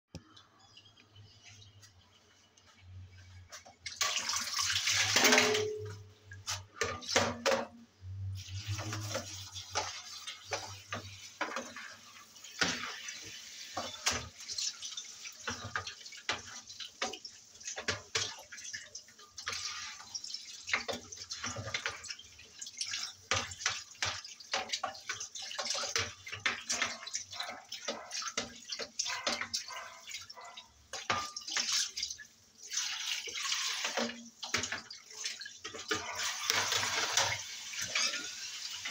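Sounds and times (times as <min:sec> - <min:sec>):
tap water splashing in sink: 0:03.5 - 0:38.9
dishes clattering: 0:05.0 - 0:07.8, 0:19.4 - 0:32.0, 0:33.8 - 0:38.9.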